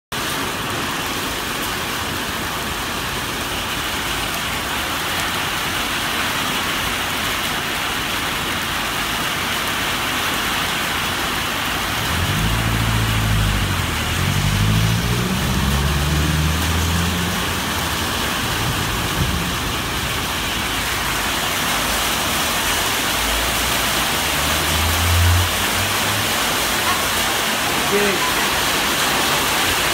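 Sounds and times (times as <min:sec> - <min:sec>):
heavy rain on a wet street: 0:00.1 - 0:29.9
vehicle engine pulling away: 0:11.9 - 0:20.8, 0:23.1 - 0:26.8.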